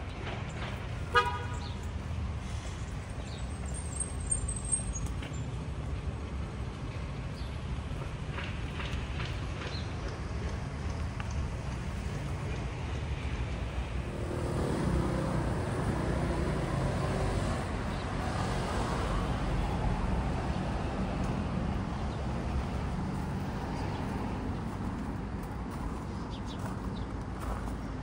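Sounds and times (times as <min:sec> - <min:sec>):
steady road noise: 0:00.0 - 0:28.0
vehicle passing by: 0:13.9 - 0:27.8.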